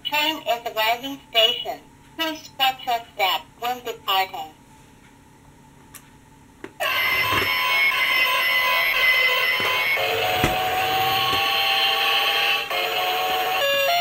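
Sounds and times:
electronic toy drone: 6.8 - 14.0.

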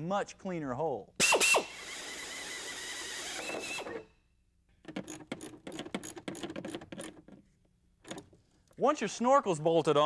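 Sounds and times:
air drill cutting metal: 1.2 - 4.1.

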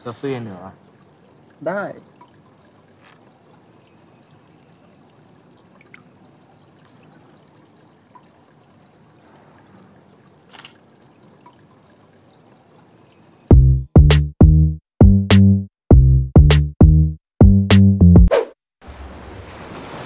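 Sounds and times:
water lapping at pool edge: 0.0 - 13.5, 18.8 - 20.0
small clicks: 10.5 - 10.8.

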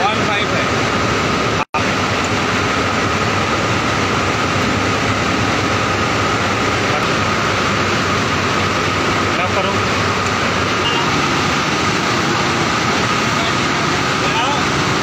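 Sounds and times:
machine whine: 0.0 - 15.0
mill machinery drone: 0.0 - 15.0.

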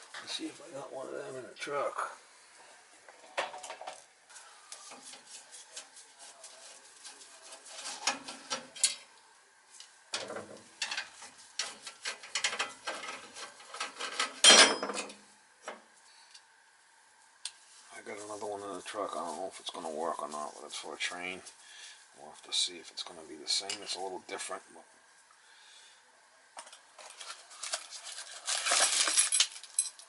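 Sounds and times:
clicks and scrapes: 10.2 - 14.5.

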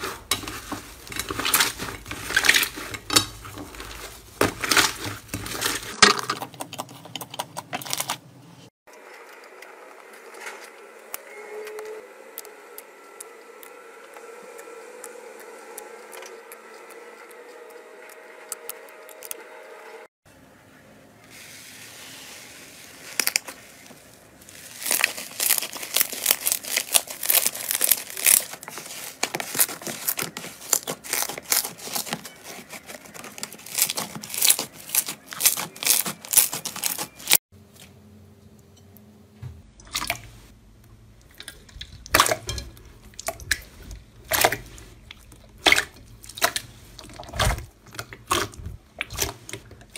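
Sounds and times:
slime squishing: 0.0 - 8.2, 21.7 - 37.4, 41.2 - 49.9
slime crackling and popping: 24.4 - 37.4.

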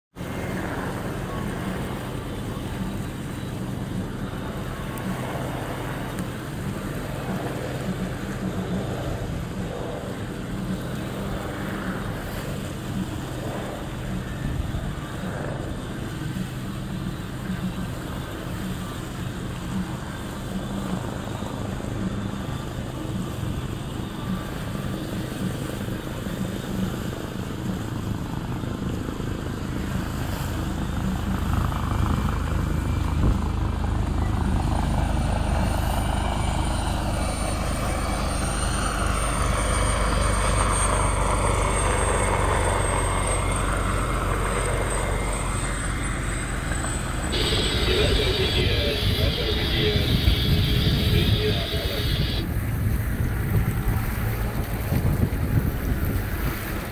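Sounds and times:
wind: 0.0 - 56.9
low engine drone: 0.1 - 56.9
water noise: 0.1 - 56.9.

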